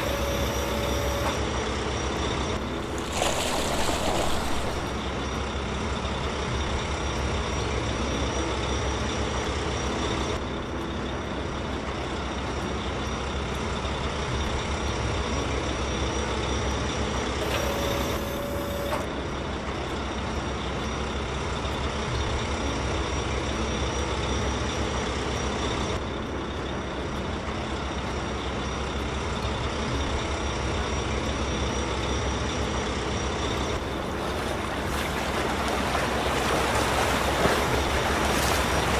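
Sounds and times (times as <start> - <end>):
heavy machinery diesel engines: 0.0 - 38.9.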